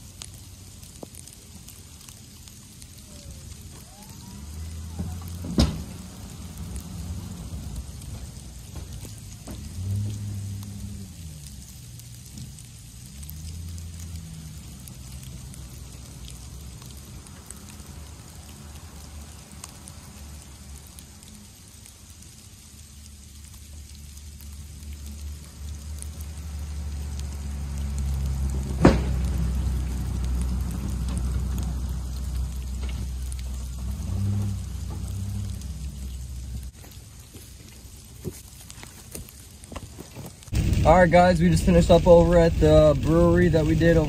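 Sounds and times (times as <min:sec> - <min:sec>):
sleet pattering: 0:00.0 - 0:44.0
truck engine running: 0:03.0 - 0:20.4, 0:24.7 - 0:36.8, 0:40.1 - 0:44.0.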